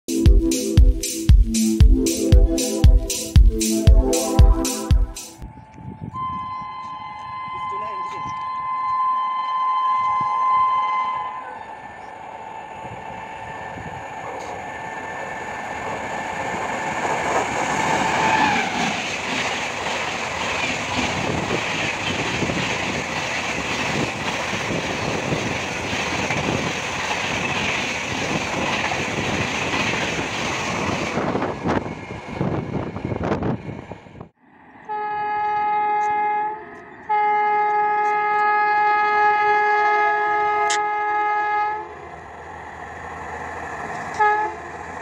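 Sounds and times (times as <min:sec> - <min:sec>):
tone dropping in pitch: 0:00.1 - 0:11.5
train passing at speed: 0:00.2 - 0:45.0.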